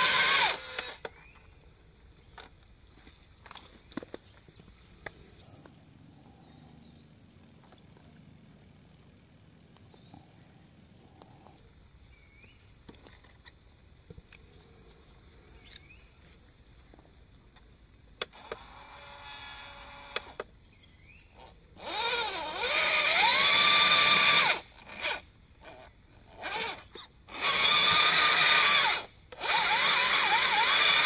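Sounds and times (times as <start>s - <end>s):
insects droning: 0.0s - 31.0s.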